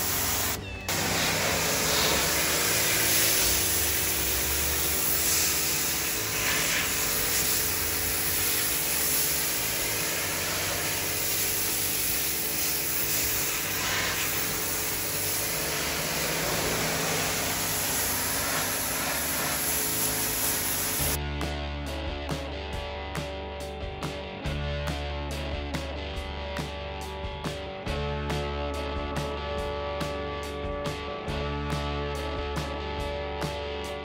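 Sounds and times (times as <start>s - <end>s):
pressure washer spray hiss: 0.0s - 21.2s
steady hum: 0.0s - 21.2s.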